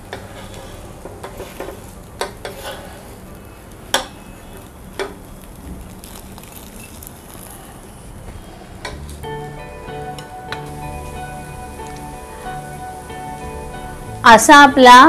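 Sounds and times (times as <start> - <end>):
spatula scraping a griddle: 0.0 - 3.3, 3.9 - 8.9
soft sizzle: 0.0 - 15.0.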